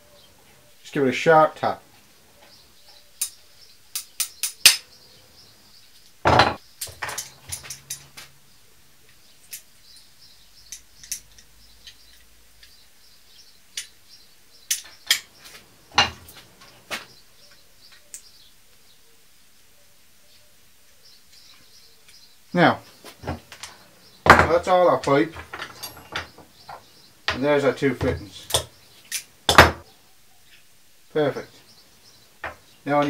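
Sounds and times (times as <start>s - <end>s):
metal knocks and clinks: 6.3s - 8.3s, 15.9s - 16.4s, 23.2s - 27.4s.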